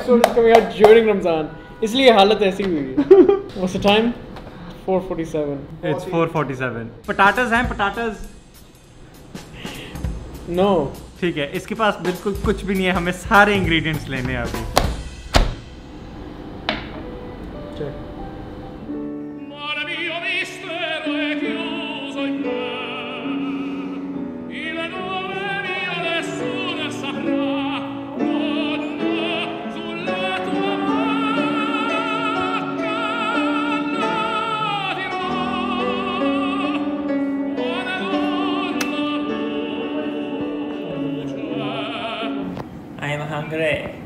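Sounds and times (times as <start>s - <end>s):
instrumental accompaniment: 7.0s - 19.6s
operatic voice singing: 12.4s - 14.8s, 19.4s - 42.6s.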